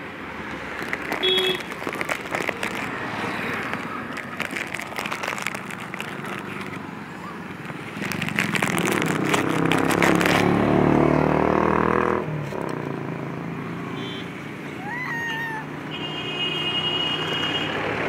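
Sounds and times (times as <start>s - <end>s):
crackling: 0.6s - 10.6s
vehicle engine running: 0.8s - 10.8s.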